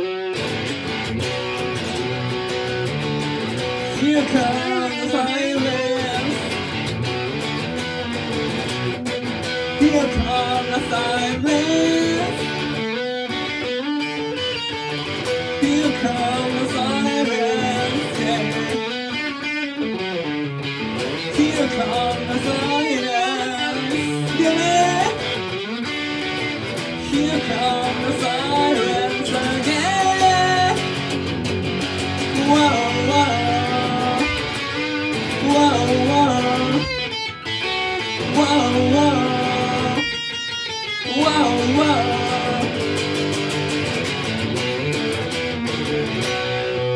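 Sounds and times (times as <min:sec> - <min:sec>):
electric guitar playing: 0:00.0 - 0:46.9
person singing: 0:03.6 - 0:06.9, 0:09.6 - 0:19.9, 0:21.0 - 0:31.1, 0:32.2 - 0:44.2.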